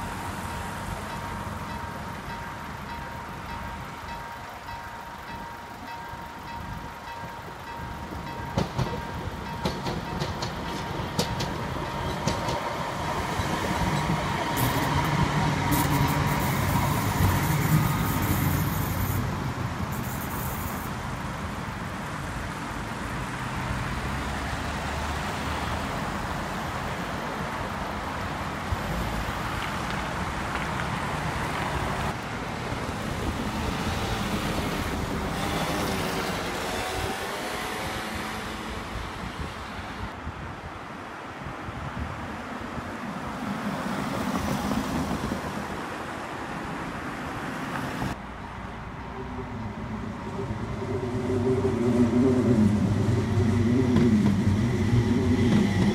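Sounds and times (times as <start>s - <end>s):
crossing warning signal tone: 0.0s - 21.0s, 49.0s - 55.9s
road traffic passing: 0.0s - 55.9s
tram passing: 0.0s - 55.9s.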